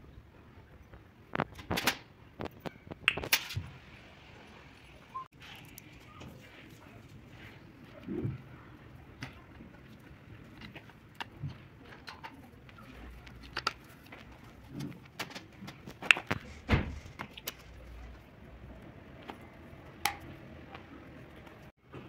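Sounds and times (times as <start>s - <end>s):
metal parts clicking and knocking: 10.4s - 17.7s.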